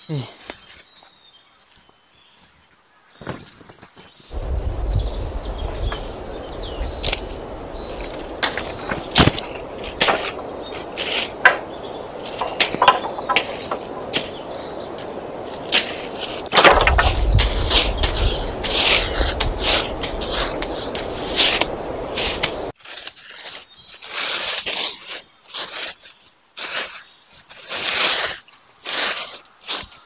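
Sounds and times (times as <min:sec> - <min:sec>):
bird chirping: 0:00.1 - 0:22.7
low rumble: 0:04.4 - 0:10.0, 0:16.6 - 0:22.7
sharp knocks and cracks: 0:06.8 - 0:22.7.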